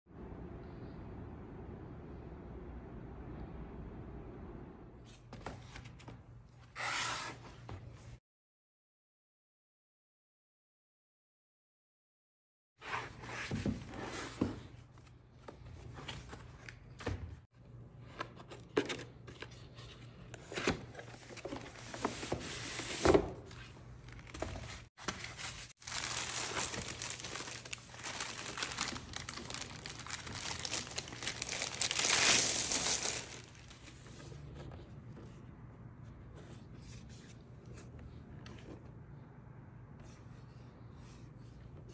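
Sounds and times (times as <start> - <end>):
cardboard box being opened: 25.0 - 34.1
plastic bag crinkling: 25.3 - 33.9.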